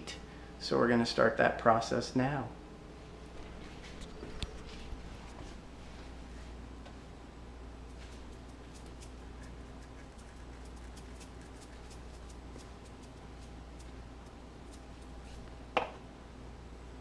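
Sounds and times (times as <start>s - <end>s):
low steady hum: 0.0s - 17.0s
grains ticking on paper towel: 8.0s - 15.2s.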